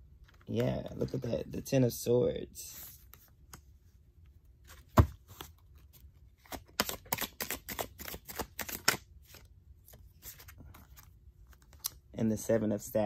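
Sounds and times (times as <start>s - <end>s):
cards being shuffled: 4.6s - 12.1s.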